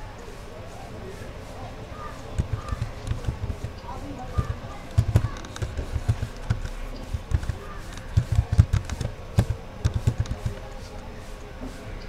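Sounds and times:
computer keyboard typing: 2.3s - 10.8s.

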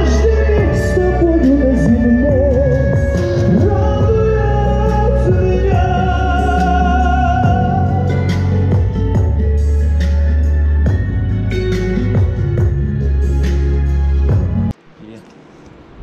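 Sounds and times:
man singing into microphone: 0.0s - 8.4s
instrumental backing music: 0.0s - 14.8s.

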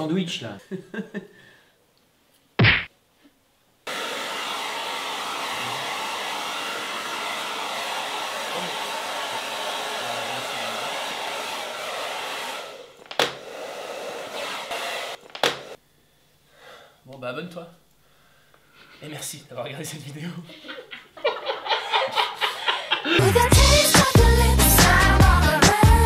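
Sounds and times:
hair dryer blowing: 3.9s - 15.8s.

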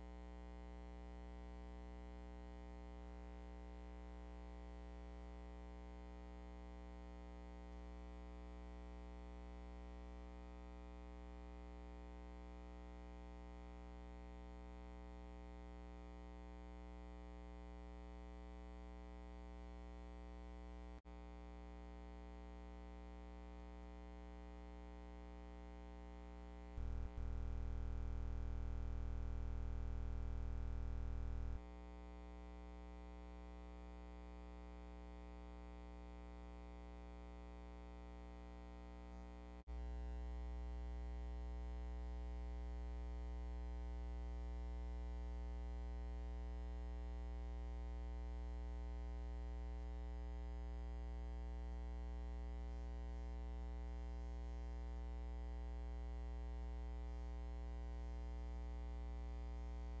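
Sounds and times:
electrical mains hum: 26.6s - 31.6s.

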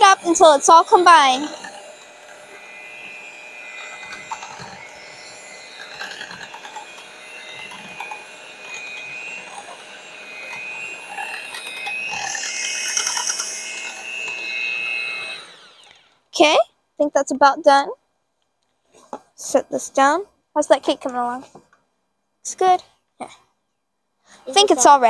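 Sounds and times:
electric hand mixer whirring: 0.0s - 16.3s.

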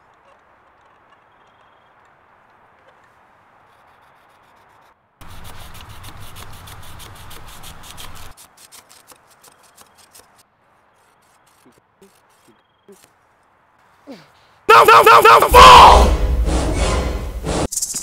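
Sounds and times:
knife sawing through rope: 3.7s - 13.1s.

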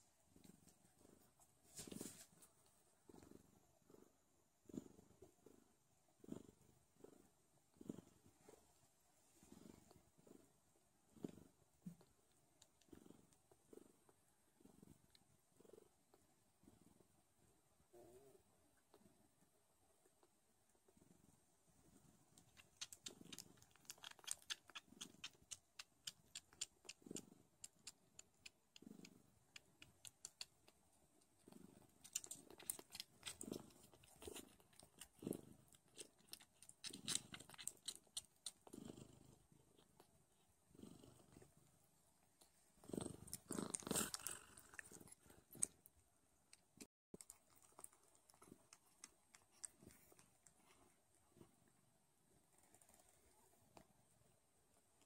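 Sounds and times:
kittens suckling wet clicks: 22.4s - 38.8s, 46.5s - 50.8s.

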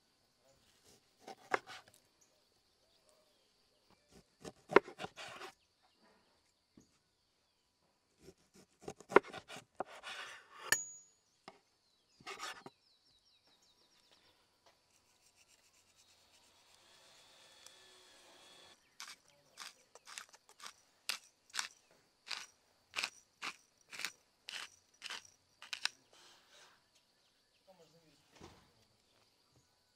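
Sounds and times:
knife slicing fat: 19.0s - 26.0s.

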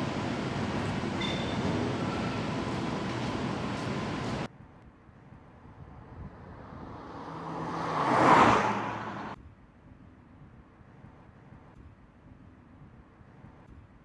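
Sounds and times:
factory hall noise: 0.0s - 4.5s
car passing by: 6.0s - 9.4s.

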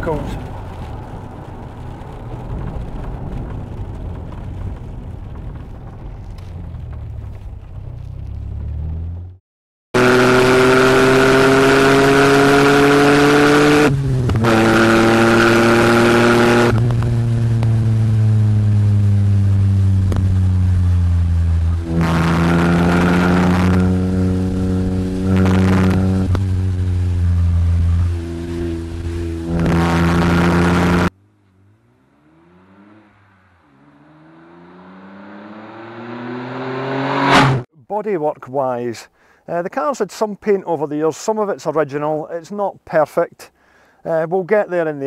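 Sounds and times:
car engine revving: 10.0s - 37.7s.

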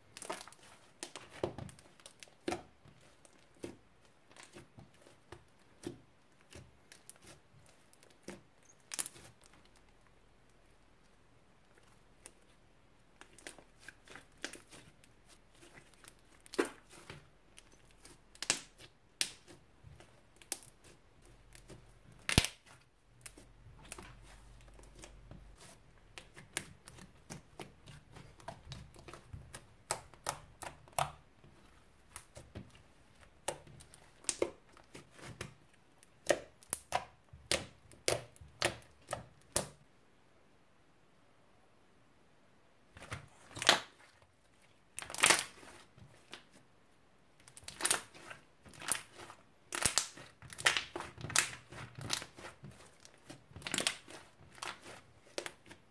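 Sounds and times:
slime clicking and popping: 22.2s - 22.7s, 36.1s - 39.8s, 48.7s - 52.4s.

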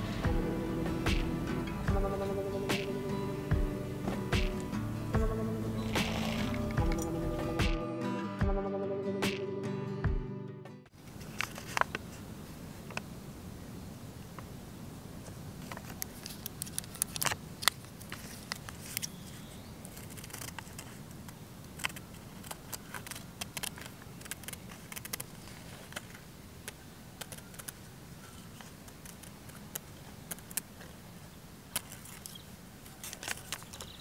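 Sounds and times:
faint steady background noise: 0.0s - 8.5s, 10.9s - 34.0s
paper crinkling: 11.0s - 12.2s, 15.6s - 31.0s, 31.7s - 34.0s
scissors snipping paper: 19.9s - 26.1s, 28.8s - 31.0s.

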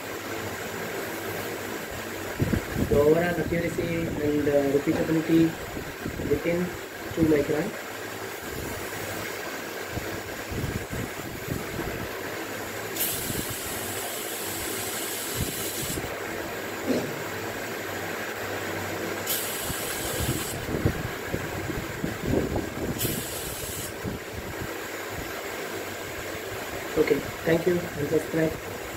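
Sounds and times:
steady low hum: 0.0s - 28.9s
compressed air hissing: 12.9s - 16.2s, 19.2s - 20.8s, 22.9s - 24.1s.

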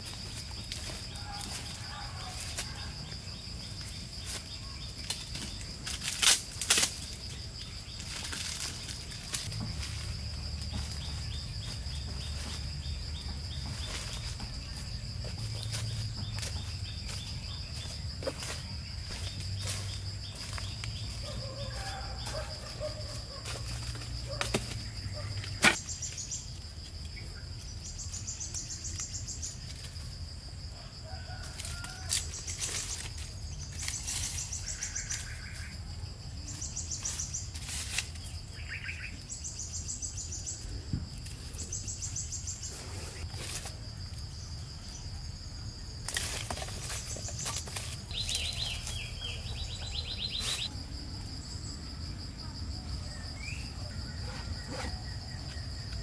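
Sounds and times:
insects droning: 0.0s - 56.0s
rapid pulsing insect chirps: 0.0s - 56.0s
firewood sticks knocking: 23.4s - 25.9s.

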